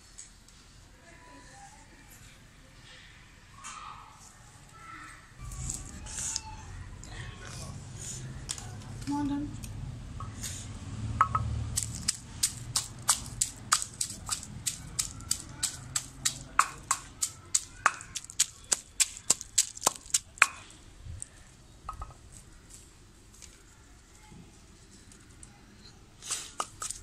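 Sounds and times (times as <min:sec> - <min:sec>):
pestle pounding in stone mortar: 0:11.2 - 0:20.6, 0:26.6 - 0:27.0.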